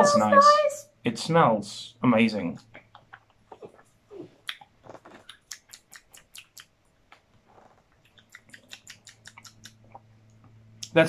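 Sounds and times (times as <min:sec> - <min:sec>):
lip smacks: 0:02.6 - 0:11.0
sipping and swallowing: 0:08.0 - 0:10.3.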